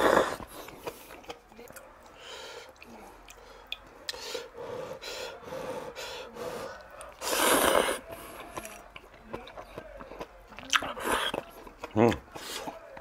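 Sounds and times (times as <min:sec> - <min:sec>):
person slurping noodles: 0:00.0 - 0:00.7, 0:07.2 - 0:08.0.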